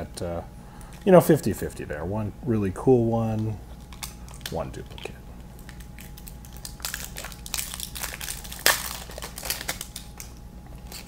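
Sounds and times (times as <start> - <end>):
plastic wrapper crinkling: 3.3 - 11.0.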